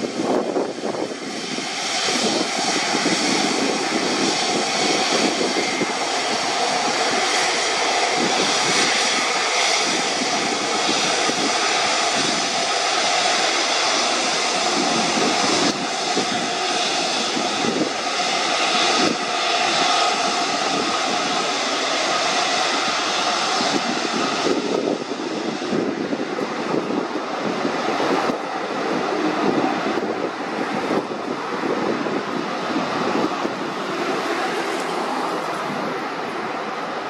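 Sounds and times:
jet engines whining: 0:00.0 - 0:37.0.

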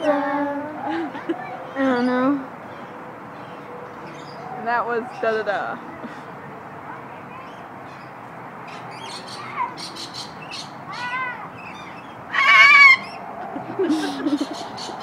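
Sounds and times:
cockatoo calling: 0:09.0 - 0:13.2, 0:13.8 - 0:15.0
harsh squawk: 0:09.3 - 0:13.2.

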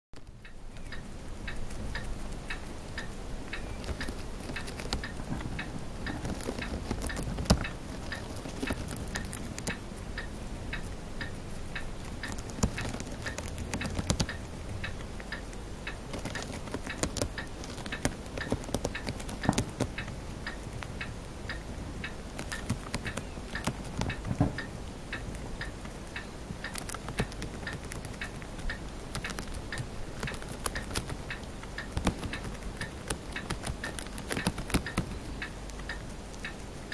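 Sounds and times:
faint steady ticking: 0:00.2 - 0:36.9
hamster crunching and nibbling: 0:00.2 - 0:36.9.

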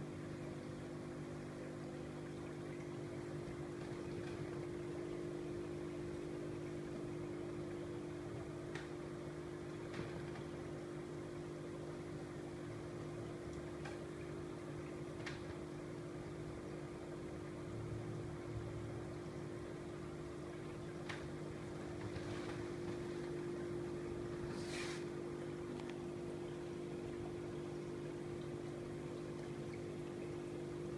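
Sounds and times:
aquarium equipment hum: 0:00.0 - 0:30.9
bubbling hiss: 0:23.0 - 0:25.6.

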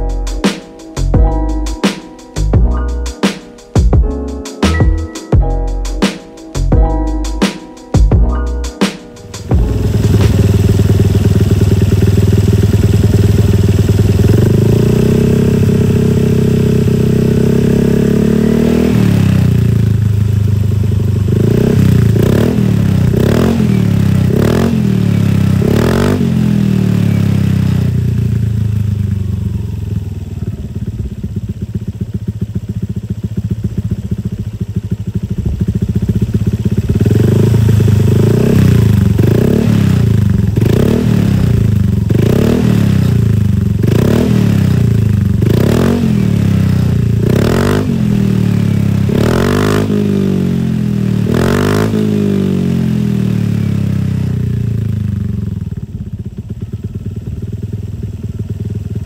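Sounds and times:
scooter engine revving: 0:09.2 - 0:59.0.

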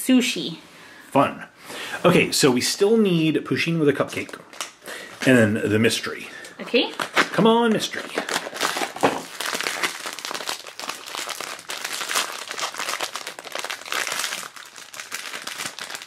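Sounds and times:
foil bag crinkling: 0:06.7 - 0:16.0.

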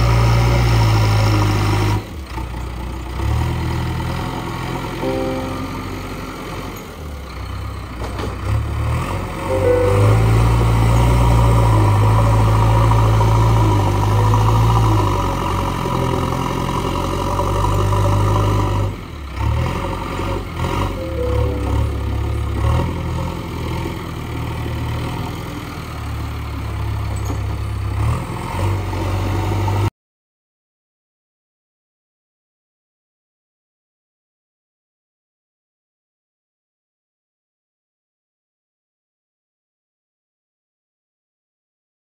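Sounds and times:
diesel engine running under load: 0:00.0 - 0:05.2, 0:06.5 - 0:29.8.

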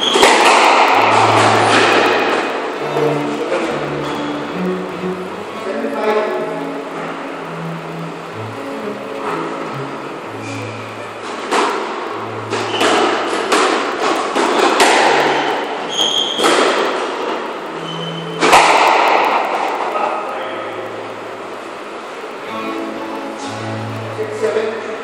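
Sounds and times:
shoes squeaking on wooden floor: 0:12.4 - 0:13.4, 0:15.8 - 0:16.6.

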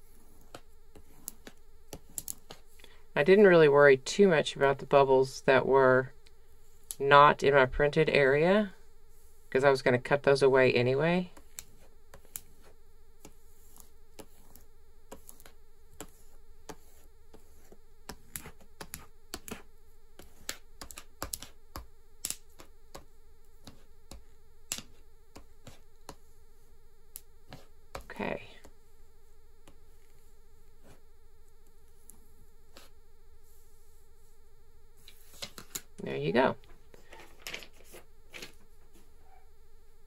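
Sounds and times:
faint buzzing hum: 0:00.0 - 0:40.0.

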